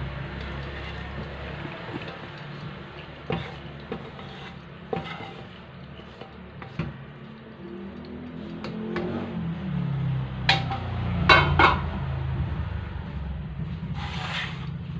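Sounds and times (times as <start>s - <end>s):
wet scraping and sliding: 0.1s - 9.2s, 13.8s - 14.8s
wok knocking on strainer: 10.5s - 12.1s.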